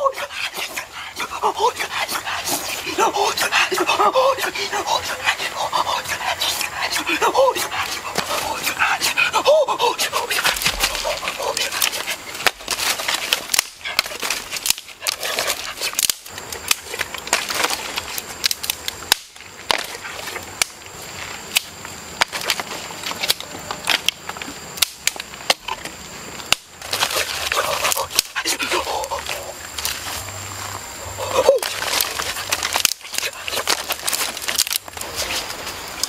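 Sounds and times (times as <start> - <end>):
sharp clicks and crackles: 10.3 - 30.3, 31.6 - 36.0.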